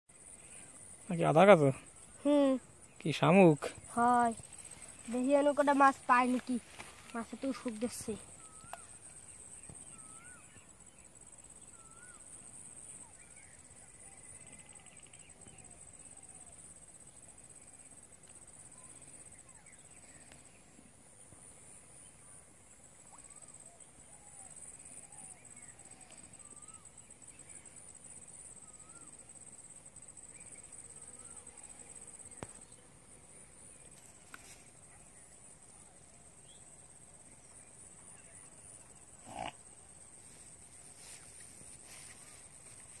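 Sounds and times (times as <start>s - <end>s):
insect drone: 0.1s - 43.0s
bird chirps: 7.2s - 16.6s.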